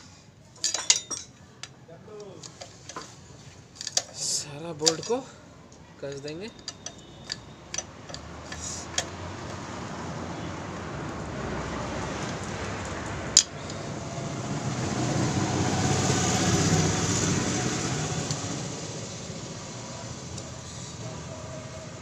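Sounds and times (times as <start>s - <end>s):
vehicle rumbling by: 7.6s - 22.0s.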